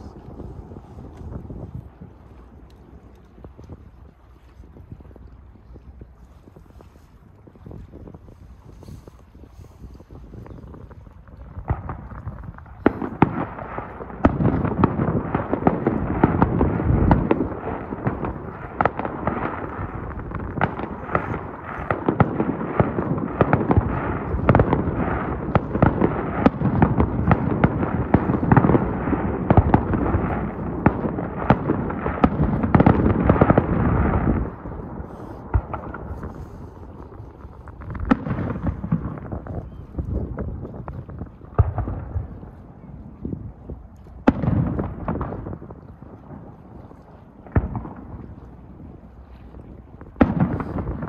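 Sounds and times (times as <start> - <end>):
fireworks bangs and crackles: 8.8 - 51.0.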